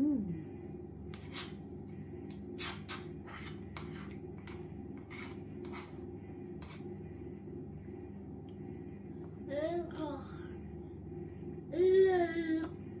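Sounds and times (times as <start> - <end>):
steady low hum: 0.0 - 13.0
plastic spoon scraping bowl: 1.0 - 1.7, 2.3 - 6.9.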